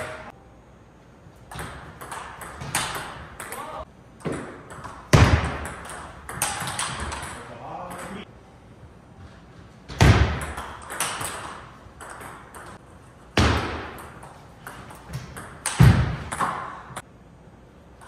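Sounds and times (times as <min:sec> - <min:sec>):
loud echoing ball hits: 0:01.5 - 0:07.2, 0:09.9 - 0:11.6, 0:13.4 - 0:14.2, 0:15.1 - 0:17.0.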